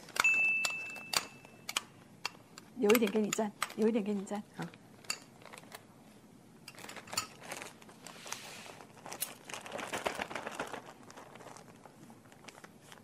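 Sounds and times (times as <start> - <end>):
plastic bag crinkling: 4.6 - 5.9, 6.7 - 13.0.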